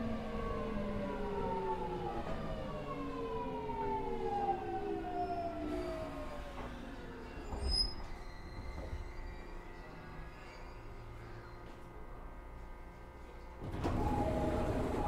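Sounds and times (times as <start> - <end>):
electric train motors whining: 13.7 - 15.0.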